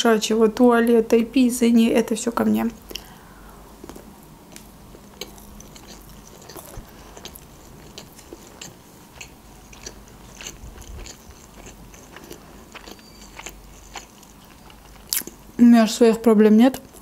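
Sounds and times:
person chewing food: 0:03.8 - 0:15.6.

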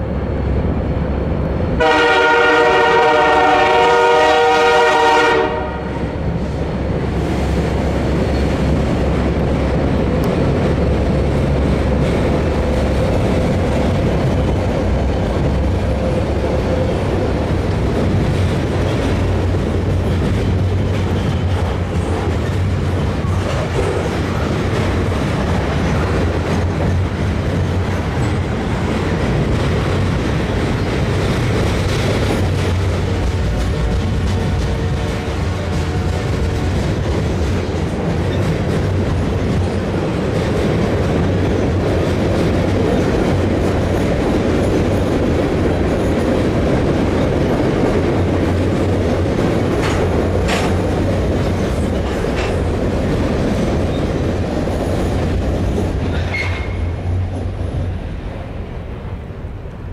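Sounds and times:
train rumbling by: 0:00.0 - 0:59.9
train horn blast: 0:01.8 - 0:06.1, 0:33.1 - 0:36.3.

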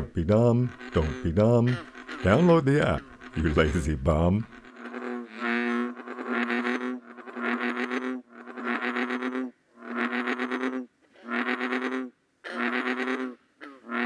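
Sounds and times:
bullfrog calling: 0:00.0 - 0:14.0.

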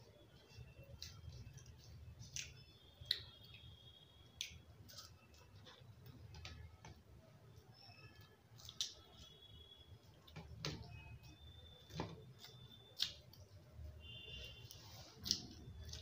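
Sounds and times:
person chewing food: 0:00.3 - 0:06.8, 0:14.6 - 0:16.0.

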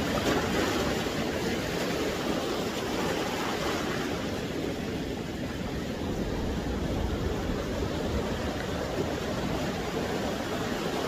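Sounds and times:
waves breaking on shore: 0:00.0 - 0:11.0.

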